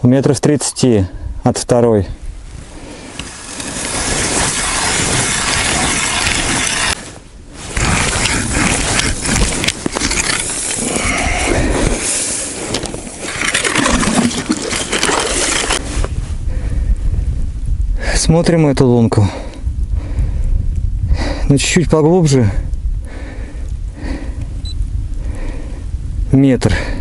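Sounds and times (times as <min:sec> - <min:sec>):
ice auger grinding through ice: 0:03.2 - 0:07.0, 0:07.6 - 0:15.8.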